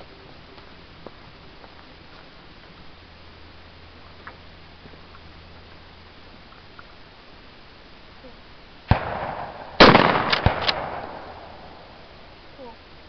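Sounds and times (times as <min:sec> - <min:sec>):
shotgun blasts: 0:08.9 - 0:11.8.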